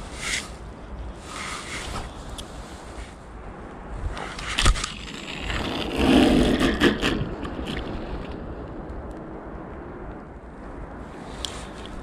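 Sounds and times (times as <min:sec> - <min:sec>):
steady hiss: 0:00.0 - 0:04.9
gear rustling and scraping: 0:04.2 - 0:07.8.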